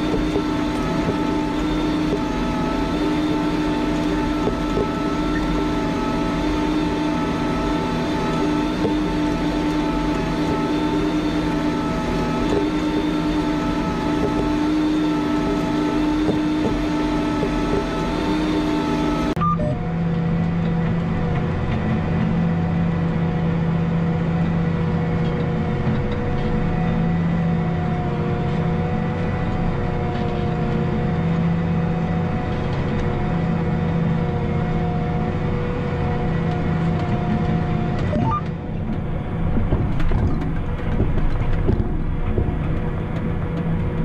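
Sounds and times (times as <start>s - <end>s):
tractor diesel engine droning: 0.0s - 44.0s.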